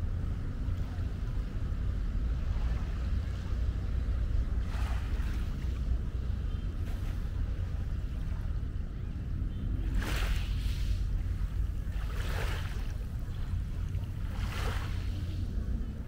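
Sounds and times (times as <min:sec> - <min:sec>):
small waves washing on shore: 0:00.0 - 0:08.9, 0:09.7 - 0:16.0
wind buffeting microphone: 0:00.0 - 0:16.0.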